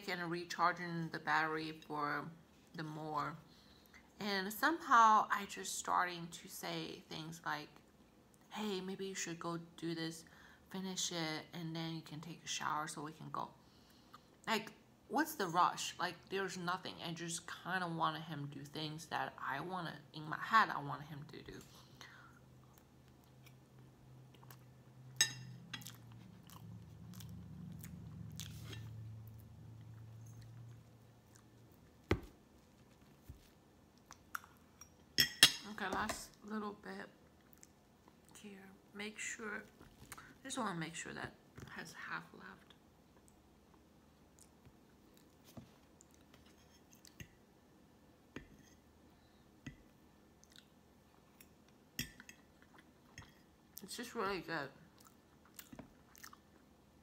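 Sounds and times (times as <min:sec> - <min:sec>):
person chewing cake: 0:22.3 - 0:24.9, 0:25.7 - 0:35.1, 0:43.1 - 0:47.4, 0:50.4 - 0:53.5, 0:54.8 - 0:56.8
low hum: 0:22.3 - 0:33.1
person chewing: 0:24.2 - 0:24.7, 0:25.7 - 0:32.0, 0:34.0 - 0:34.7, 0:50.4 - 0:51.5, 0:55.0 - 0:56.7.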